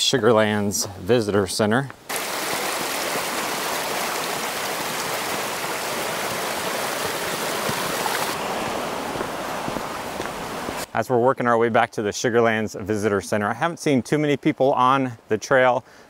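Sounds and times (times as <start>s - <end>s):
mountain creek rushing: 2.1s - 11.0s.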